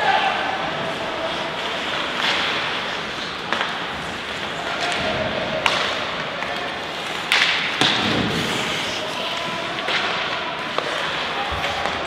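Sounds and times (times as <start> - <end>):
hockey sticks and puck clacking: 0.0 - 12.0.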